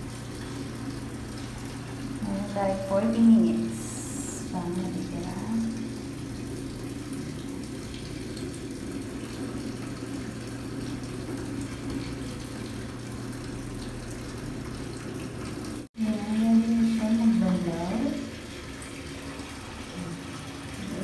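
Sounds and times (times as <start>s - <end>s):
washing machine hum: 0.0s - 21.0s
water splashing into washing machine: 0.0s - 21.0s.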